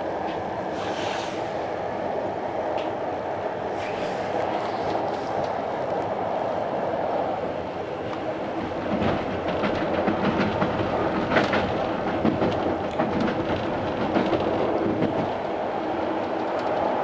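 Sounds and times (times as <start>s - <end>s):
loud train clatter: 7.1s - 17.0s
train wheels clicking over rail joints: 8.6s - 15.5s.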